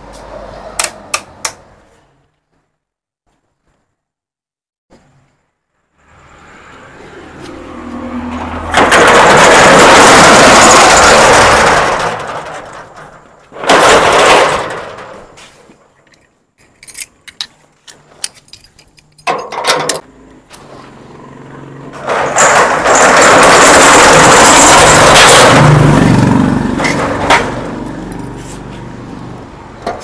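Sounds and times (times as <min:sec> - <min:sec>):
metal roller shutter rattling: 0:08.0 - 0:16.0, 0:20.6 - 0:30.0.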